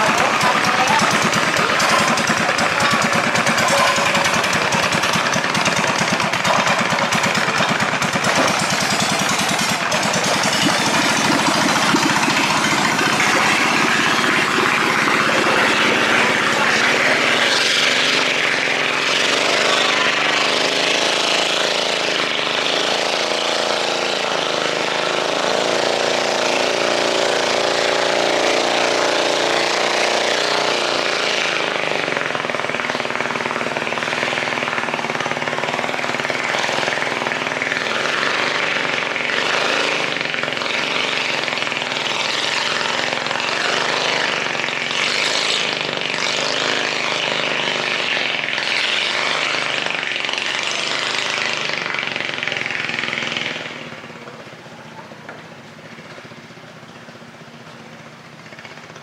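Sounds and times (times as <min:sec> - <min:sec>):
boat engines running loudly: 0:00.0 - 0:59.0.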